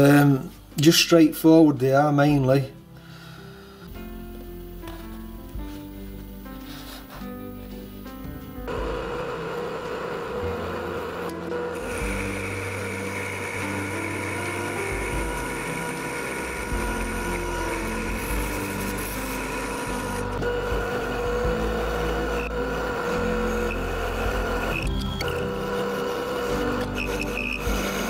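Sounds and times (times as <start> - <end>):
high steady whine: 7.7 - 28.0
metal lathe running: 8.7 - 28.0.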